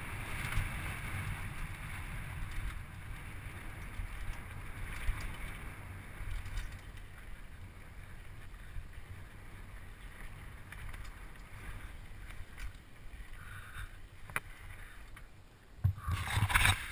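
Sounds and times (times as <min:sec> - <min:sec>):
bike tyres rolling on dirt: 0:00.0 - 0:16.9
small rattles: 0:03.6 - 0:07.4.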